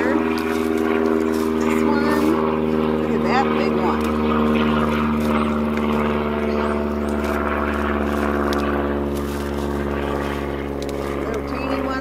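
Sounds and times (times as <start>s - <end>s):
hands digging in soil: 0.0s - 2.4s, 6.6s - 12.0s
engine drone: 0.0s - 12.0s.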